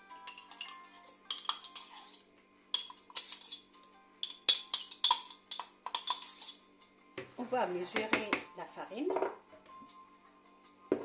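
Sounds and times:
metal spoon clinking in glass jar: 0.1 - 6.6.

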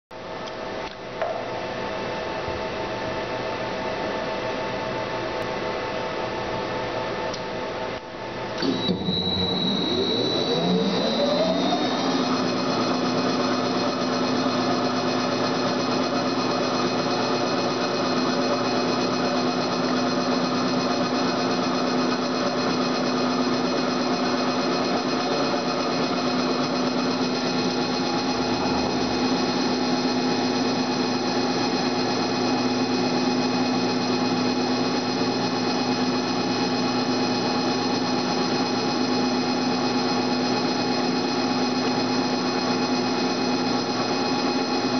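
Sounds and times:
machine hum: 1.2 - 44.9
welding machine spindle whine: 8.5 - 44.9
high machine tone: 8.6 - 44.9.

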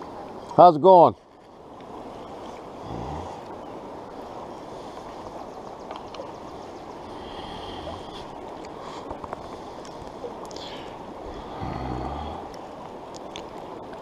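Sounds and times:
stream rushing over rocks: 0.0 - 14.0
faint clicks: 5.0 - 6.3.

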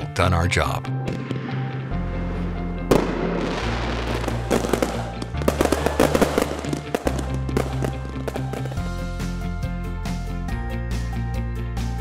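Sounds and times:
fireworks bursting and crackling: 2.9 - 9.0.

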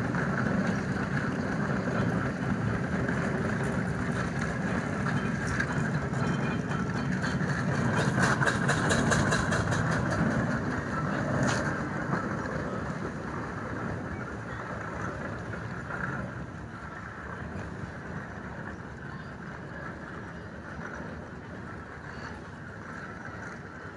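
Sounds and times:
steam roller exhaust chuffing: 0.0 - 23.9
sharp clack: 4.4 - 12.2.

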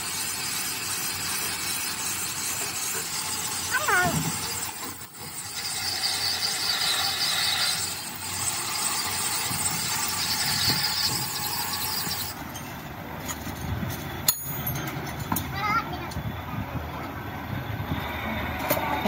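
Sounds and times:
metal lathe cutting: 0.0 - 12.4.

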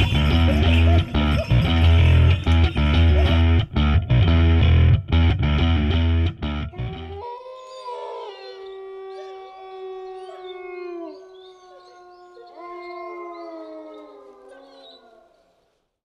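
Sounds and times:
dogs howling together: 7.0 - 15.5.

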